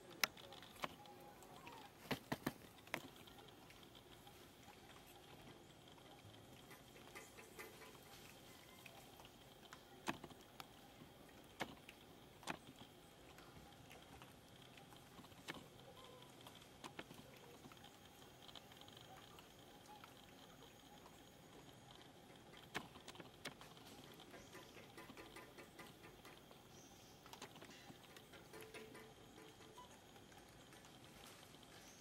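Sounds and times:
faint outdoor ambience: 0.0 - 32.0
faint ticks: 0.0 - 32.0
sharp clicks: 9.2 - 30.9.

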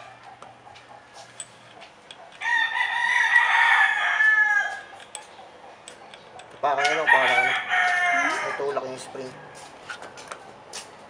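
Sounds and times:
rooster crowing: 2.4 - 5.0, 6.6 - 9.7.

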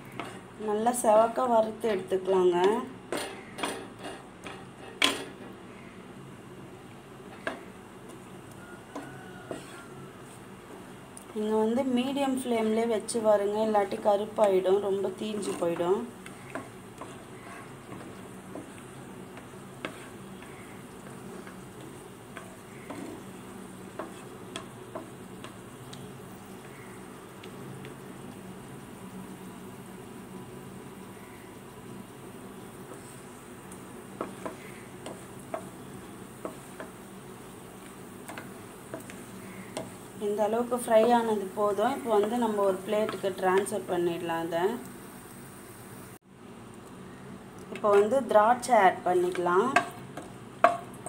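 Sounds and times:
spatula stirring in a pan: 0.0 - 1.1, 1.7 - 5.6, 7.1 - 11.4, 12.4 - 44.0, 47.7 - 51.0
faint frying hiss: 0.0 - 51.0
spatula tapping against pan: 34.2 - 35.8, 49.3 - 50.9.

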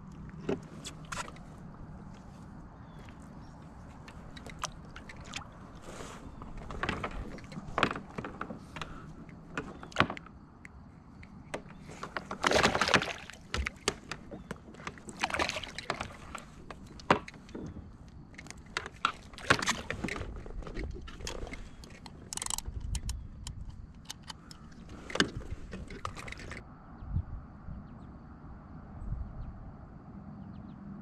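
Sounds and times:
clicks taps and rustling: 3.0 - 26.6
scuffing on plastic kayak: 4.8 - 9.0.

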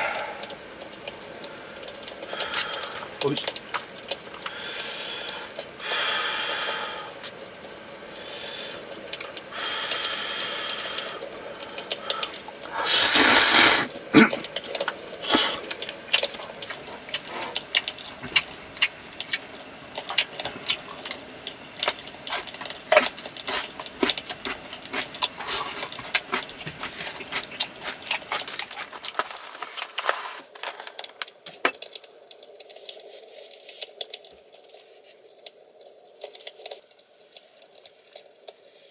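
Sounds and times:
short loud hiss: 12.8 - 13.9.

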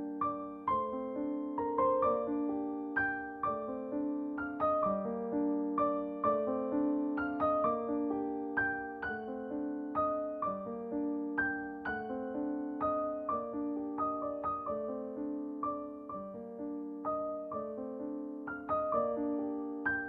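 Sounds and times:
gentle piano melody: 0.0 - 20.0.

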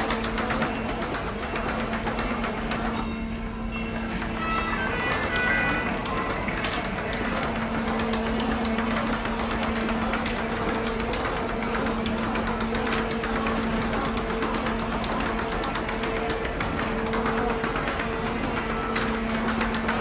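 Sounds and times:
quick irregular clicks: 5.1 - 20.0.

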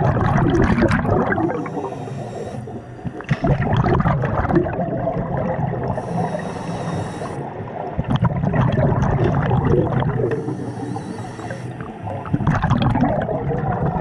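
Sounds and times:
gurgling exhaled bubbles: 0.0 - 6.4, 7.1 - 14.0
regulator inhale hiss: 1.4 - 3.2, 5.9 - 7.7, 10.2 - 12.3.

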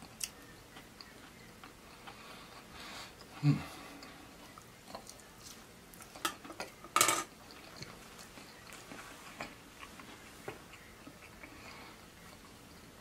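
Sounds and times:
person chewing fried chicken: 7.5 - 13.0.

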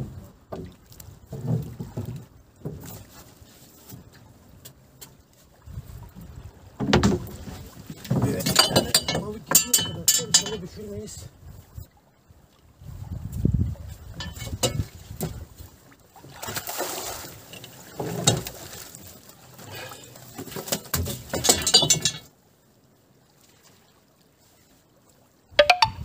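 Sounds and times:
water splashing and dripping: 0.0 - 11.0, 11.6 - 26.0
net knocking against metal hull: 6.8 - 10.6, 14.2 - 15.4, 20.4 - 22.3.

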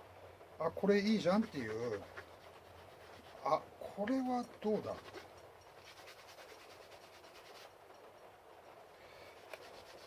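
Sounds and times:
cloth rasping on leather edge: 1.1 - 3.6, 4.6 - 7.7, 9.4 - 10.0.

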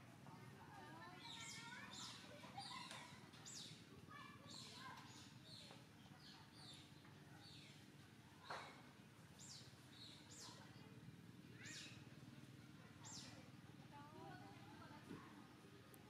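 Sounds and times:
low steady background hum: 0.0 - 16.0
bird chirps: 9.4 - 10.6, 11.6 - 12.0.

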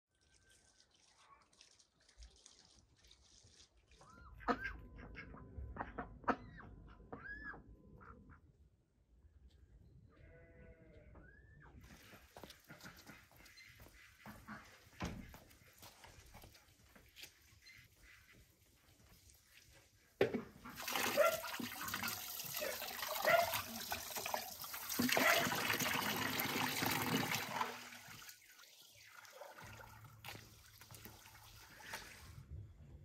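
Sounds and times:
water pouring and splashing: 0.1 - 4.3, 11.8 - 13.1, 14.3 - 32.4.

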